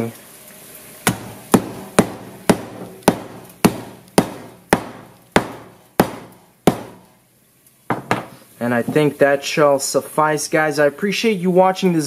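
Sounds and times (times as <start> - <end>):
hammer striking a phone: 1.1 - 7.1.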